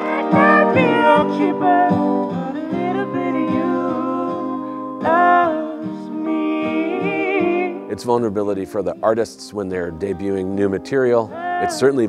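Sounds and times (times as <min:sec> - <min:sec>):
woman singing slow melody: 0:00.0 - 0:07.9, 0:11.3 - 0:11.9
instrumental accompaniment: 0:00.0 - 0:12.0.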